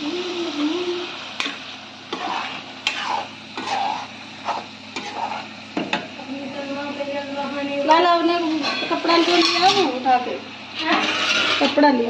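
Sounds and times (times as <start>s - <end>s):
frying sizzle: 0.0s - 12.0s
metal spatula scraping a pot: 1.4s - 5.6s, 8.4s - 10.1s, 10.7s - 12.0s.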